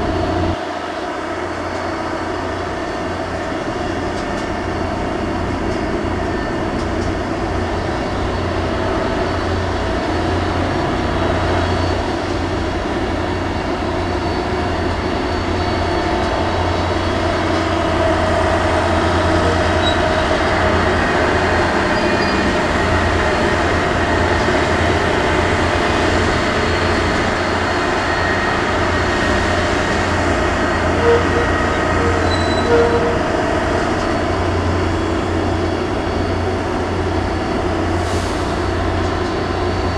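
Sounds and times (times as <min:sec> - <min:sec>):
crane machinery droning: 0:00.0 - 0:39.9.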